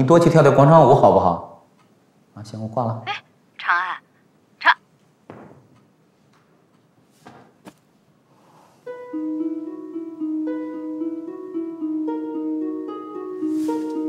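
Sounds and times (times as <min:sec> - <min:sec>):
plucked string music: 0:08.9 - 0:14.0.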